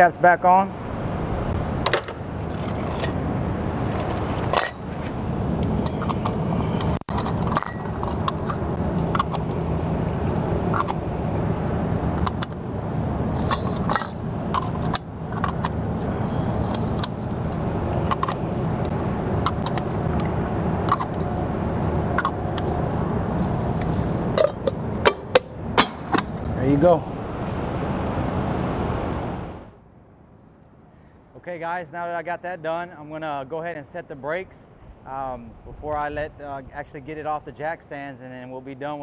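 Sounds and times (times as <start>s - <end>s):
low hum of shop noise: 0.0s - 31.6s
metal clinks and scrapes: 2.4s - 11.0s, 13.3s - 15.8s, 16.5s - 21.4s, 22.1s - 22.8s, 23.4s - 26.5s.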